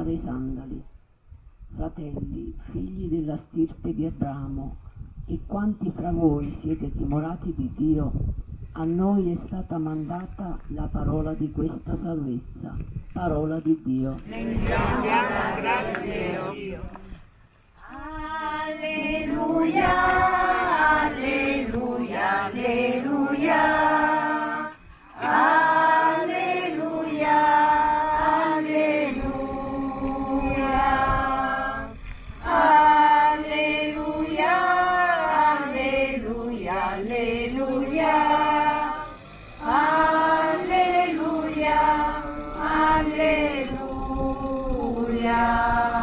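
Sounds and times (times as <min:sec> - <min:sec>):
church choir singing: 0:14.3 - 0:16.9, 0:17.8 - 0:46.0.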